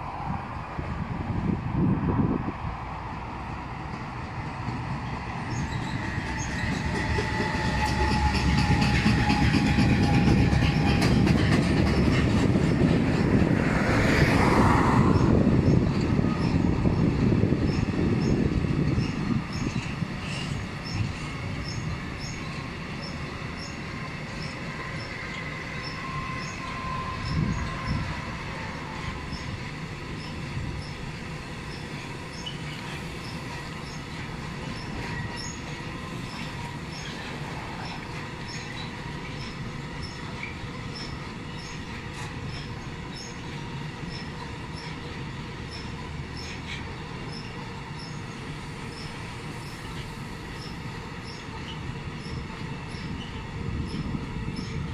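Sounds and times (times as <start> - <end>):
train wheels rumbling on rails: 0.0 - 54.9
wheel squeal: 5.5 - 12.2.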